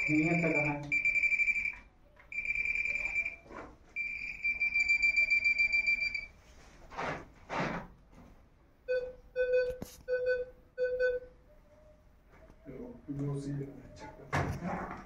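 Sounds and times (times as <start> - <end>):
pulsing pinpointer beep: 0.0 - 3.4
short scrapes: 6.6 - 7.9.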